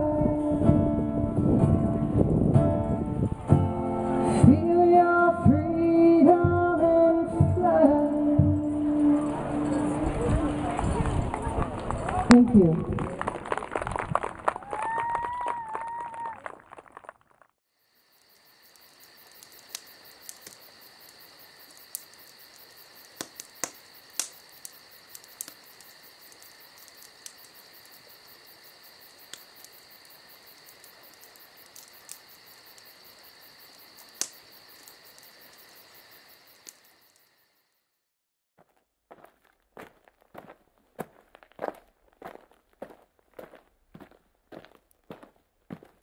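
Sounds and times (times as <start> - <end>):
crickets chirping: 17.7 - 38.1
sharp clicks: 23.1 - 27.6, 34.2 - 35.3.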